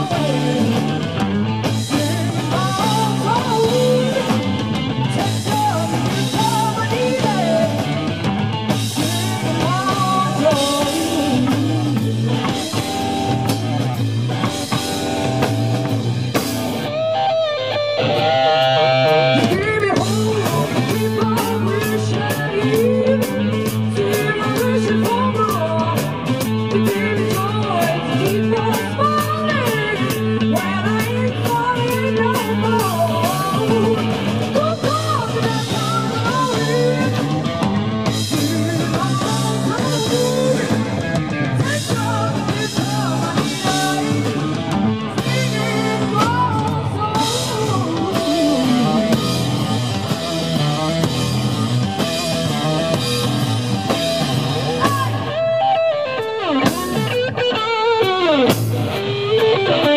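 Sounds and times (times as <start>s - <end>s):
woman singing: 0.0s - 1.0s, 1.6s - 8.1s, 8.9s - 13.0s, 19.3s - 49.4s, 54.8s - 55.5s, 56.5s - 57.2s
bass guitar: 0.0s - 59.9s
drum kit beat: 0.0s - 59.9s
electric guitar: 0.0s - 59.9s.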